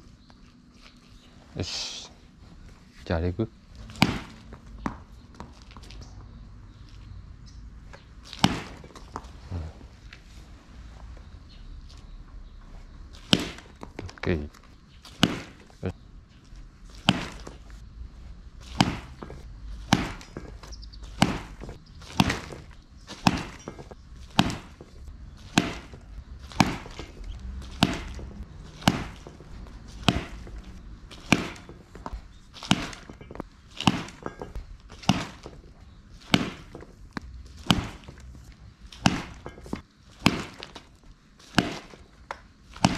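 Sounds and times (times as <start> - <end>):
balls hitting practice net: 3.3 - 6.2, 6.8 - 10.2, 13.1 - 42.9
baseball bat hitting balls: 3.3 - 6.2, 7.4 - 9.4, 13.2 - 16.0, 16.8 - 17.8, 18.4 - 42.9.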